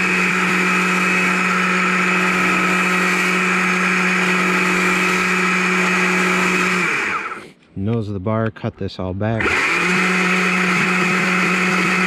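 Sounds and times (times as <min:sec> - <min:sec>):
chainsaw cutting log: 0:00.0 - 0:07.6, 0:09.4 - 0:12.0.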